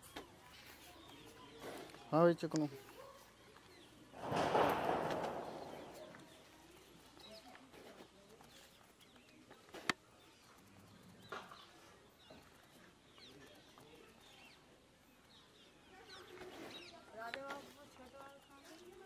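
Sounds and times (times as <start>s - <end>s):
faint bird chirps: 8.2s - 19.0s.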